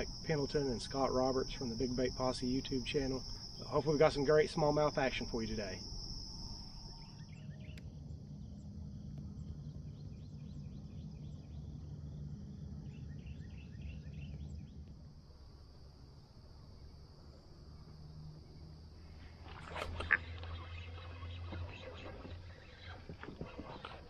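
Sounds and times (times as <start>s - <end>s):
high insect trill: 0.0s - 24.0s
small birds chirping: 19.8s - 24.0s.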